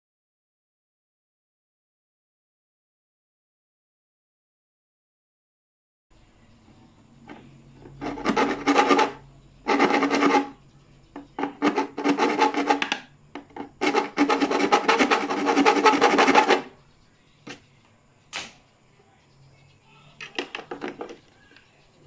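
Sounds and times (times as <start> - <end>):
file rasping on plastic: 7.9 - 10.6, 11.2 - 16.8.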